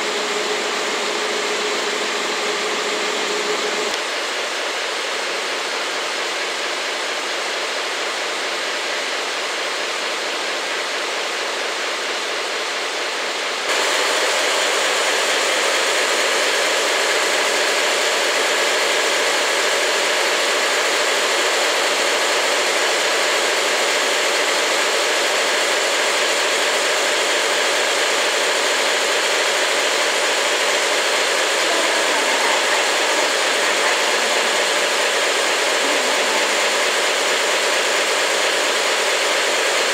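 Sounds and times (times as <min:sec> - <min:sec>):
diesel locomotive engine idling: 0:00.0 - 0:09.2, 0:09.8 - 0:39.9.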